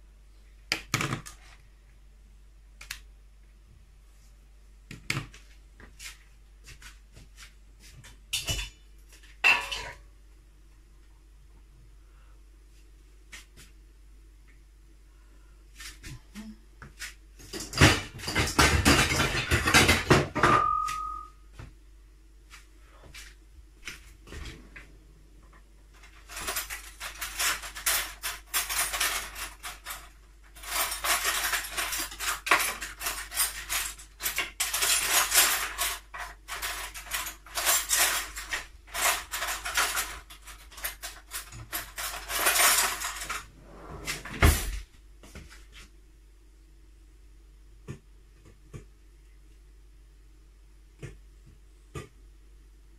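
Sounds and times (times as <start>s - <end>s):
kitchenware clattering: 8.3s - 10.1s, 17.4s - 21.3s, 26.0s - 44.8s
brief high tone: 20.5s - 21.4s.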